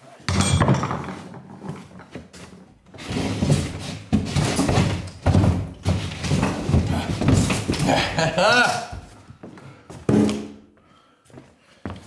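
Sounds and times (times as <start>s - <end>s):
wooden boards wrenched off wall: 3.0s - 8.3s.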